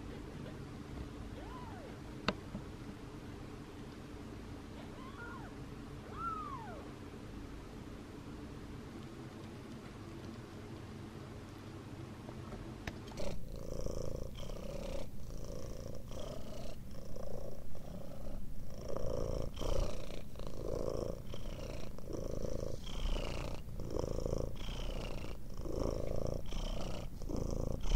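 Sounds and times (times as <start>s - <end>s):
cat purring: 13.0s - 27.9s.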